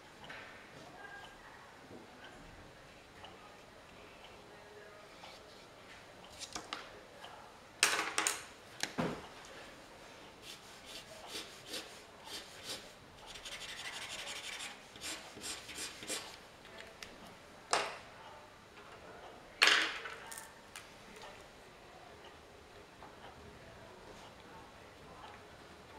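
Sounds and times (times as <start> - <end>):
art tools scratching on paper: 10.4 - 16.4.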